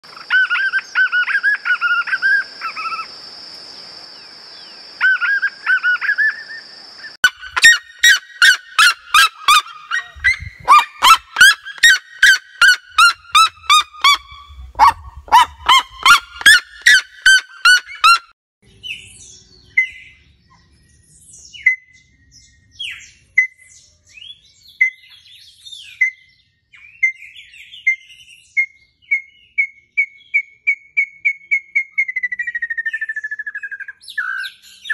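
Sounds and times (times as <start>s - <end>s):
bird calling: 0.1s - 3.1s, 7.2s - 18.3s
bird yelping loudly: 0.1s - 3.1s, 7.2s - 18.3s.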